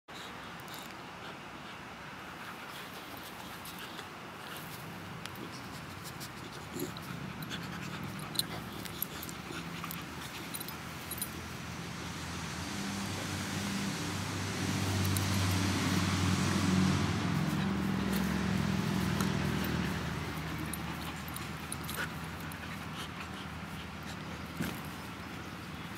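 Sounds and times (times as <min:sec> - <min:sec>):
puppies panting: 0:00.2 - 0:25.9
puppies growling playfully: 0:05.5 - 0:11.4, 0:12.1 - 0:25.6.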